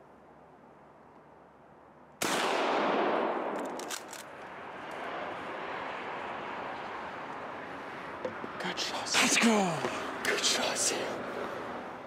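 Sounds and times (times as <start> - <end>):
shotgun shot echoing: 2.2 - 3.7.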